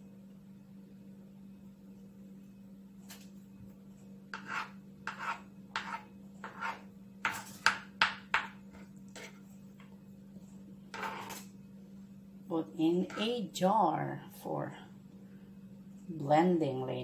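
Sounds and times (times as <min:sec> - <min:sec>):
knife cutting on plastic board: 0:04.3 - 0:09.4.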